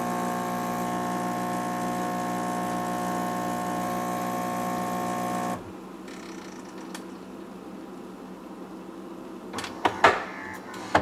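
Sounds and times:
espresso machine pump buzzing: 0.0s - 5.7s.

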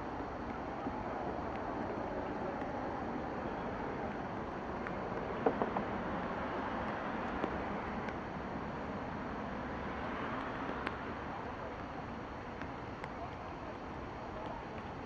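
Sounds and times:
outdoor rush and hiss: 0.0s - 15.0s
faint clicks: 10.3s - 15.0s.

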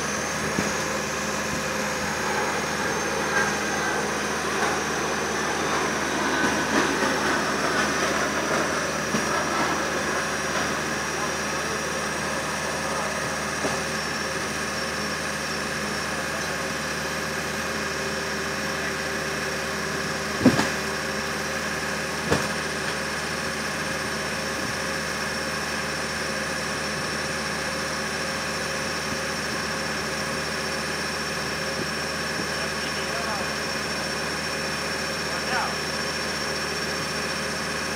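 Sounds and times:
airliner cabin hum and whine: 0.0s - 25.0s.

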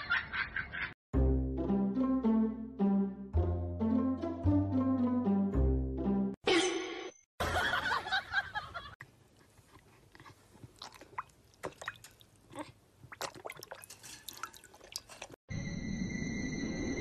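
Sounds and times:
dog lapping water: 10.0s - 15.4s.

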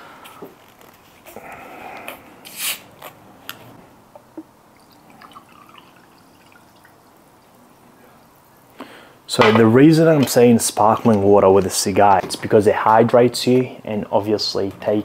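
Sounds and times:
water fizzing: 4.6s - 7.7s
water pouring into a glass: 4.7s - 7.2s.

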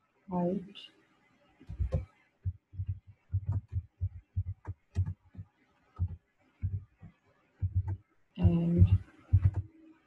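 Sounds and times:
computer keyboard typing: 1.7s - 5.4s, 6.0s - 9.7s.

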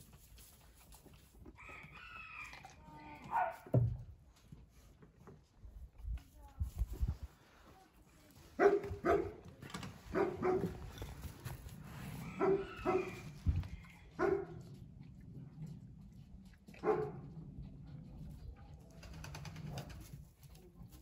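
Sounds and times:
animal barking: 8.6s - 9.4s, 10.1s - 10.8s, 12.3s - 13.2s.

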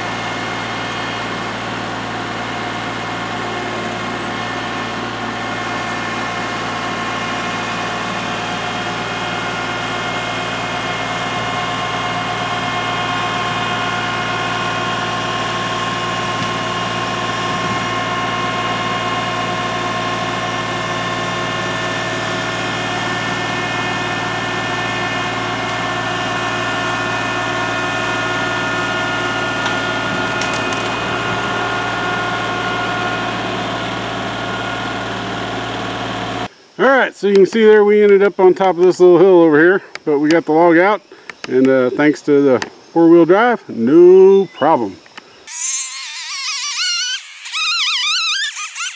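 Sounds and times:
tractor diesel engine running: 0.0s - 38.1s.

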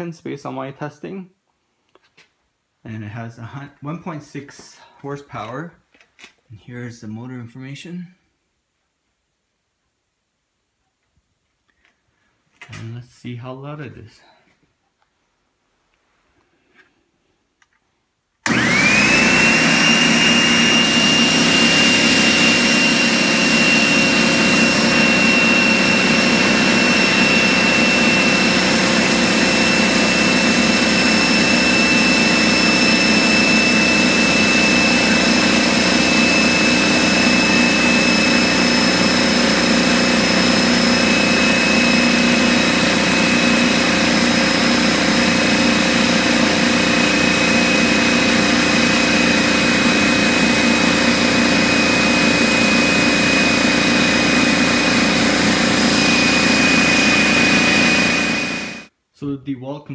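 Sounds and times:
air compressor running: 18.4s - 58.9s
high motor whine: 18.4s - 58.9s.

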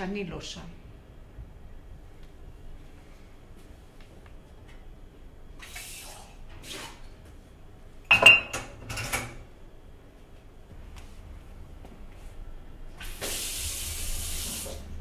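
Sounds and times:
dishes clattering and clinking: 8.1s - 9.4s.

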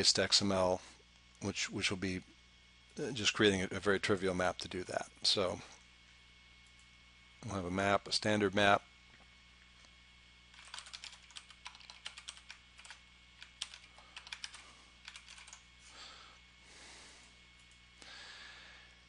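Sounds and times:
typing on computer keyboard: 10.5s - 15.6s.

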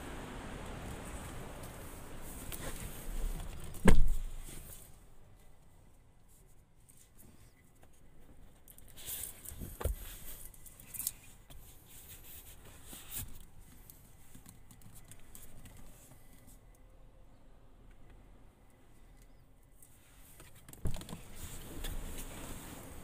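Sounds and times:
hand handling armrest: 2.3s - 4.8s, 20.2s - 23.0s.

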